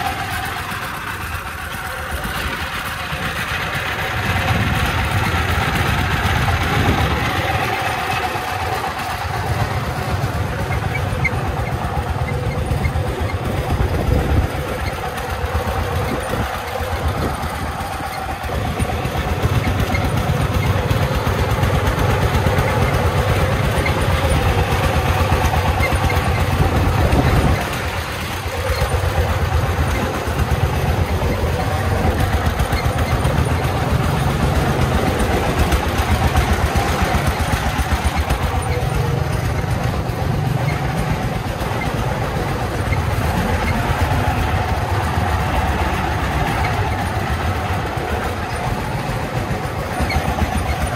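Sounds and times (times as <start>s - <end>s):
diesel engine chugging: 0.0s - 50.9s.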